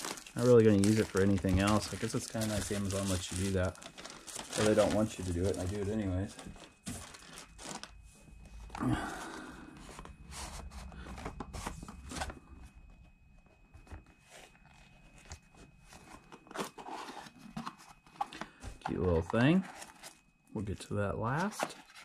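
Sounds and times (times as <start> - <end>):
cardboard scraping and rustling: 0.0 - 7.9, 9.8 - 12.7, 13.7 - 20.2.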